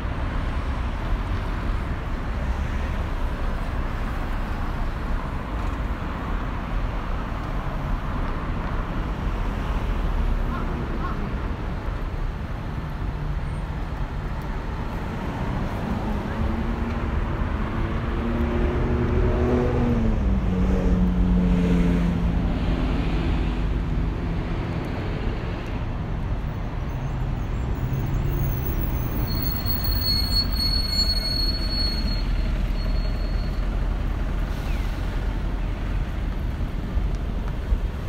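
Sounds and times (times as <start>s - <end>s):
traffic rumble: 0.0s - 38.0s
thin high squeal: 28.2s - 33.7s.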